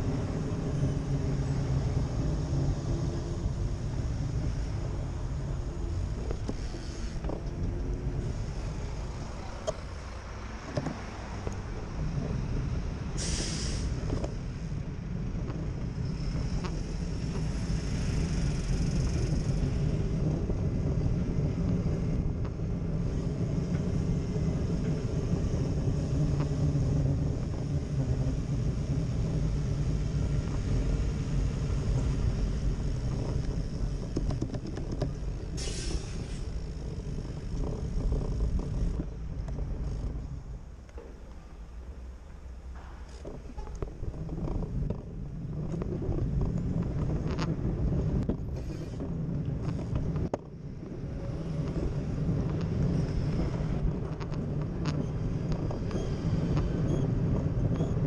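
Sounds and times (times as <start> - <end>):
road traffic rumble: 0.0 - 58.0
short loud hiss: 13.2 - 13.9.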